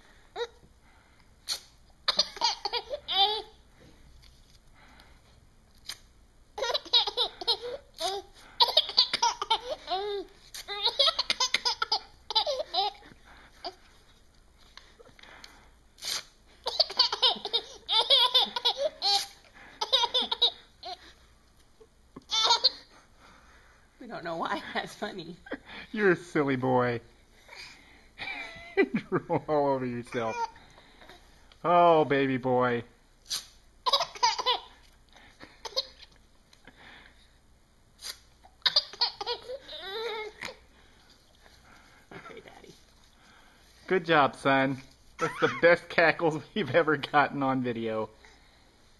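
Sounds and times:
baby cackling with laughter: 6.6s - 13.0s, 16.6s - 21.2s, 33.8s - 34.8s, 35.5s - 36.1s, 38.5s - 40.6s
paper tearing: 16.0s - 16.3s.

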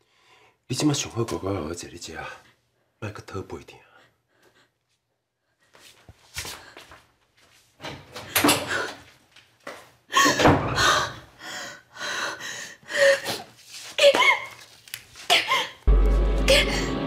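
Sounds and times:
woman sobbing and gasping: 15.3s - 15.9s
music: 15.9s - 17.0s.

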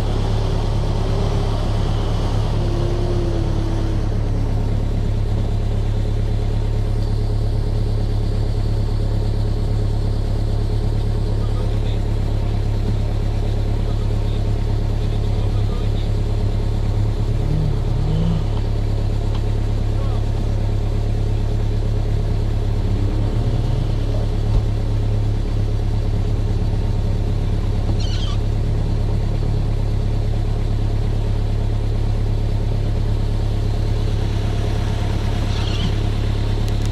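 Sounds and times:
engine low drone: 0.0s - 36.9s.

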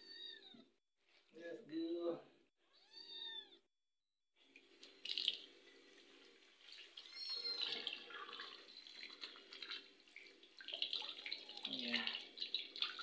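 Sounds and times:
tap water running and splashing: 4.5s - 13.0s.

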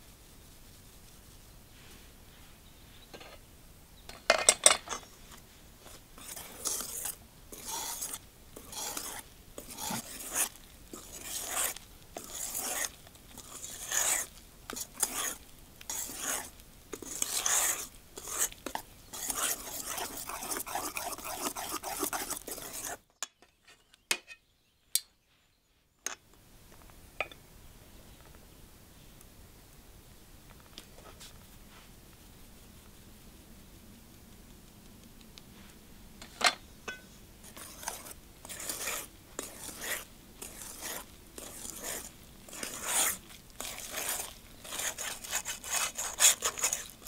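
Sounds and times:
whisk beating batter in bowl: 5.9s - 23.0s, 37.4s - 47.0s.

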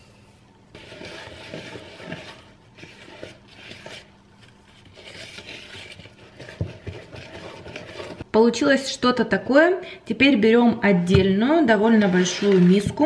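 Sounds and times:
wooden spoon stirring batter: 0.7s - 8.3s, 11.0s - 13.0s.

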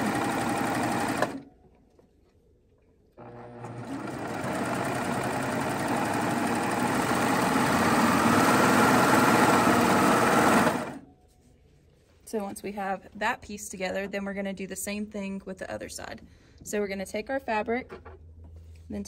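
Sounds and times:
serger stitching: 0.0s - 1.4s, 3.2s - 11.0s.

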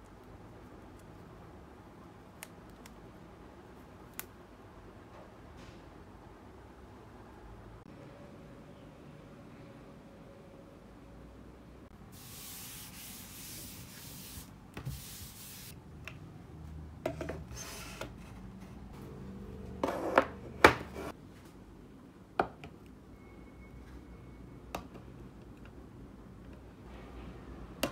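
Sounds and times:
hissing rub on desk: 12.2s - 15.7s.

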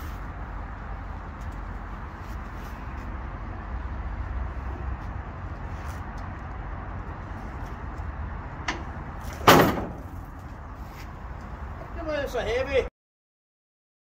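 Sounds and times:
steady low rumble: 0.0s - 12.0s
steel frame clanking on concrete: 8.7s - 10.3s.

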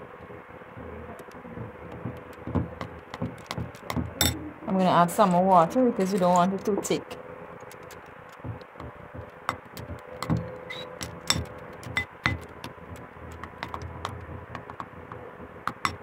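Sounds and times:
metal spoon clinking on glass bowl: 11.2s - 12.4s.

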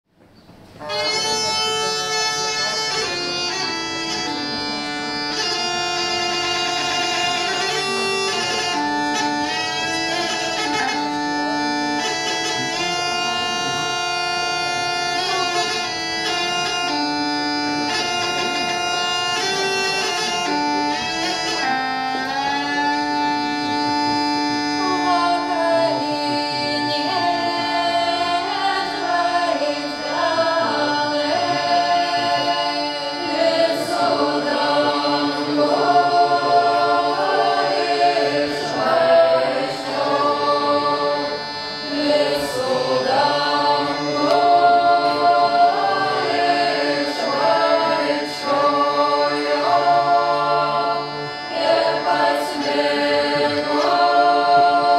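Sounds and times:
bagpipe melody over drone: 0.8s - 54.9s
people singing: 23.6s - 54.9s.

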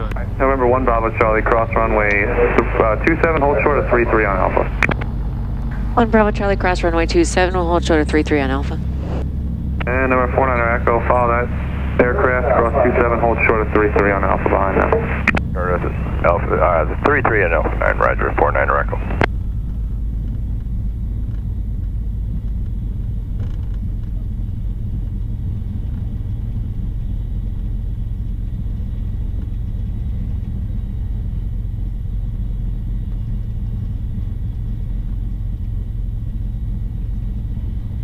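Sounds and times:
aircraft piston engines rumbling: 0.0s - 38.0s.

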